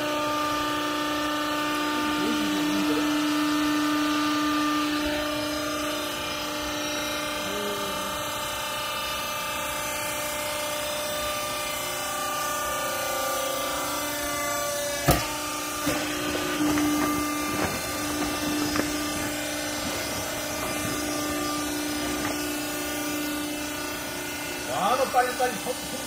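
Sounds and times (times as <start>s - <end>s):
hydraulic power unit humming: 0.0s - 26.0s
sharp knocks: 15.0s - 19.1s.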